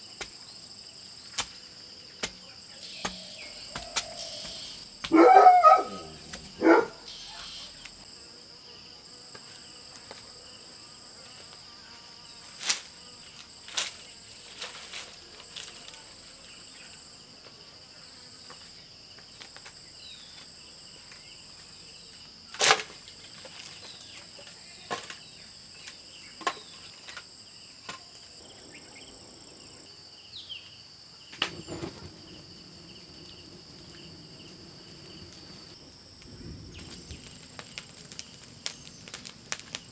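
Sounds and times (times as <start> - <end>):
insects droning: 0.0 - 39.9
wood fire rushing: 31.3 - 39.9.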